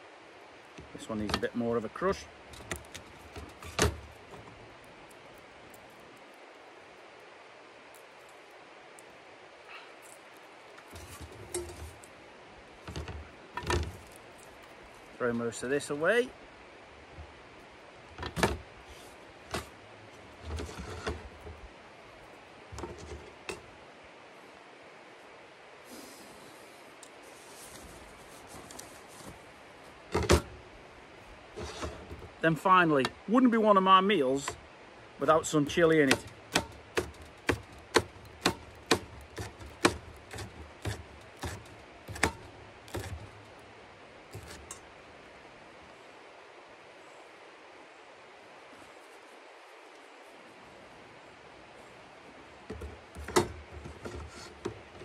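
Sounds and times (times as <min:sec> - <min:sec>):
knocks and rustles: 0:02.5 - 0:04.6, 0:10.8 - 0:12.2, 0:12.8 - 0:14.7, 0:18.1 - 0:21.7, 0:22.7 - 0:23.7, 0:27.4 - 0:30.6, 0:31.6 - 0:32.4, 0:36.0 - 0:43.6, 0:44.3 - 0:44.9, 0:52.6 - 0:55.0.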